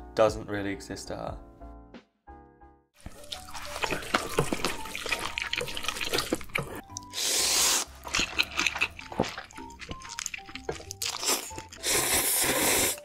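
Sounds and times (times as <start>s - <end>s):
chopsticks stirring noodles: 3.0s - 13.0s
loud noodle slurp: 3.5s - 13.0s.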